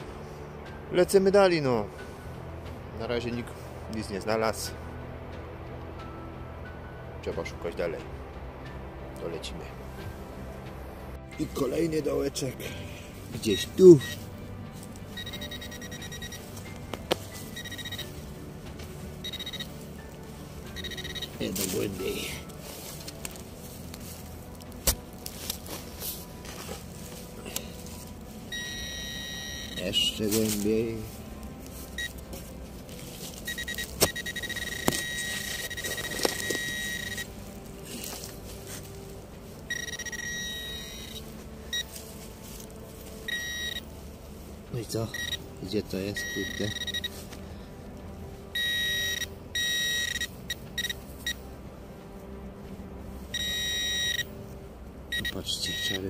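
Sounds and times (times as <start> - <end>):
metal detector beeping: 13.5 - 14.2, 15.1 - 18.3, 19.2 - 19.9, 20.7 - 22.4, 28.5 - 30.2, 32.0 - 32.2, 33.3 - 37.4, 39.6 - 42.0, 43.2 - 43.9, 45.0 - 45.5, 46.1 - 47.2, 48.6 - 51.4, 53.3 - 54.3, 55.1 - 56.0
digging knocks in soil: 16.6 - 17.3, 22.5 - 27.7, 32.2 - 36.6.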